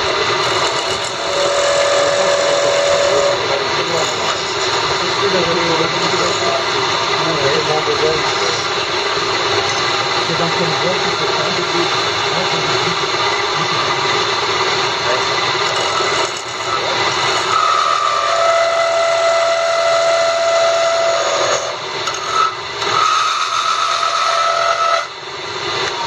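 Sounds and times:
high whine: 0.0 - 23.5
wood lathe running: 0.0 - 26.0
tool rasping on wood: 0.4 - 6.8, 15.7 - 25.1.

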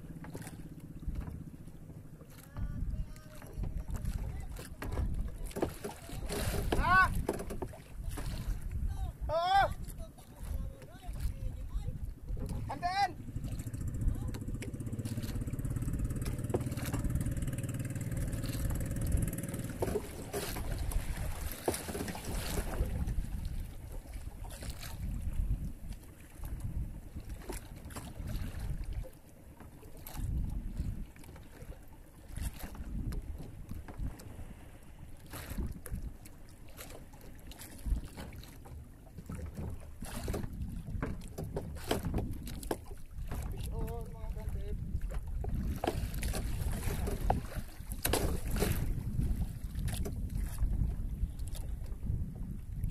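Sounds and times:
knocks and rustles of hauling line: 0.0 - 8.7, 13.4 - 25.1, 36.7 - 44.1, 44.8 - 50.7
sea noise: 0.0 - 52.9
small boat engine running: 0.0 - 52.9
wind: 0.0 - 52.9.

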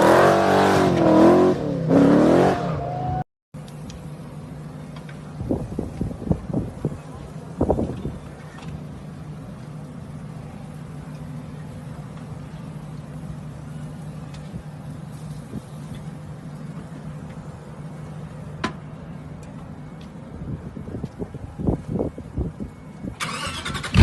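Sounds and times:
car engine idling: 3.6 - 20.7
engine throttle blips: 21.4 - 24.0.

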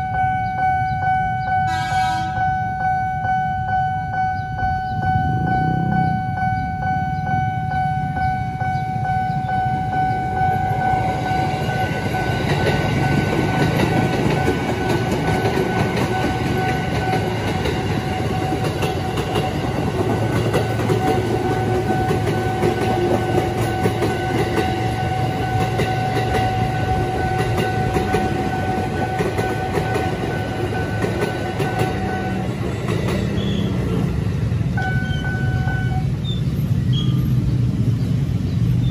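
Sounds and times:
train wheels clattering: 11.3 - 35.4.

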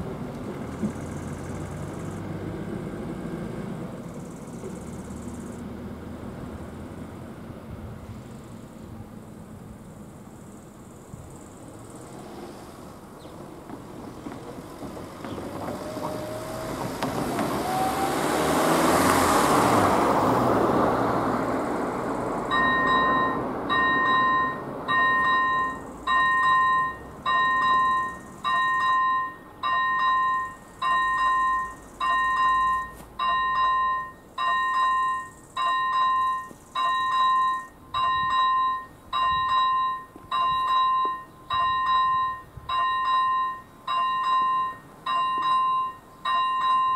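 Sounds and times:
car driving past: 11.8 - 28.4
two-tone electronic warning bell: 22.5 - 46.9.

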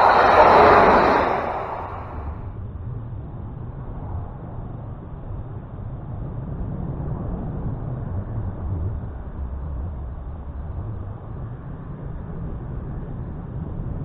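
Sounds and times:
low rumbling noise: 0.0 - 2.5.

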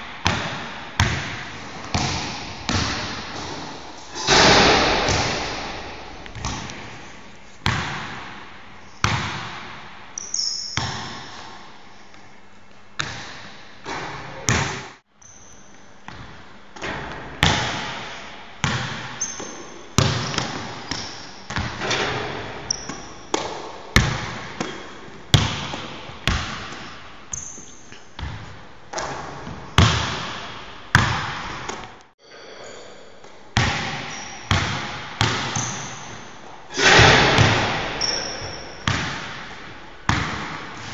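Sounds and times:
basketball bouncing in empty hall: 0.0 - 40.9
sneaker squeaks: 10.2 - 11.4, 15.1 - 16.2, 19.1 - 23.5, 26.7 - 28.5, 33.8 - 39.2.

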